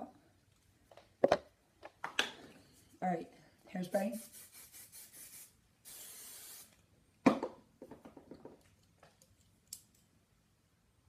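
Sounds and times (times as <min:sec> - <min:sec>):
aerosol spray hiss: 0:04.0 - 0:06.8.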